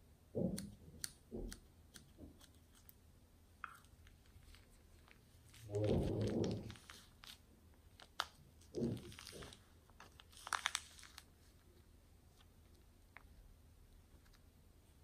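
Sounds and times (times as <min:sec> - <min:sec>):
plastic piping bag crinkling: 0:03.6 - 0:14.6
foam beads crunching: 0:10.2 - 0:11.3.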